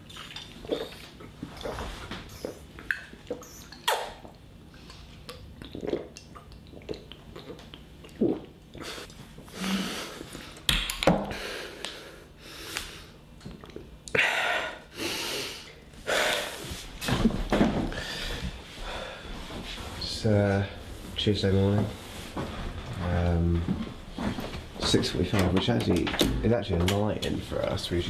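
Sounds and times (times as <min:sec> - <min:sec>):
man breathing and sniffing: 0:14.1 - 0:17.2, 0:17.8 - 0:20.0.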